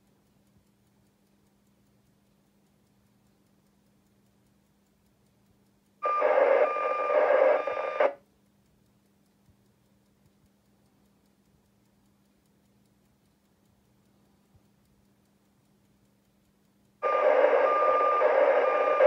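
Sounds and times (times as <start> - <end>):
harsh buzzing radio data burst: 6.0 - 8.2, 17.0 - 19.0.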